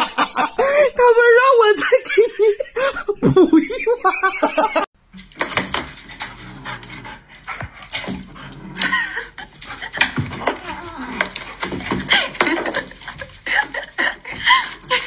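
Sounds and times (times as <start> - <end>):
dog panting: 5.6 - 15.0.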